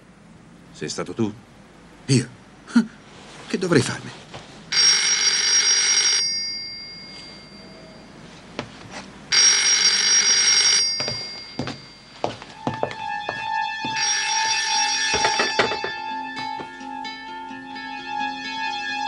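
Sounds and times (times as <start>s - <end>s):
telephone ringing: 4.7s - 8.3s, 9.3s - 16.6s.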